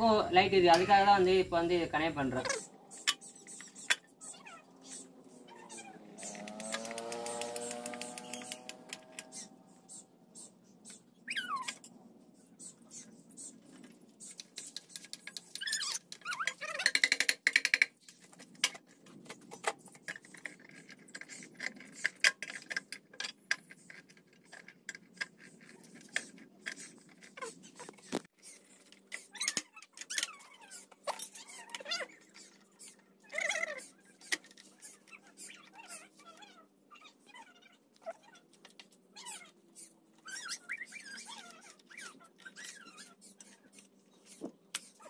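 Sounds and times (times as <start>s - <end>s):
squeaky pitch-bending calls: 2.2s - 11.8s, 15.4s - 17.2s, 25.7s - 38.5s, 39.1s - 45.0s.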